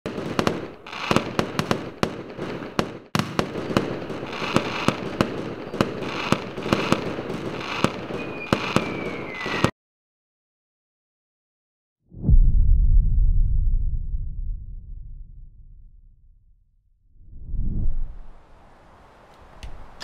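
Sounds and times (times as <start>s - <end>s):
fireworks bangs: 0.1s - 9.7s
fireworks crackling: 0.1s - 9.7s
falling whistle: 8.2s - 9.7s.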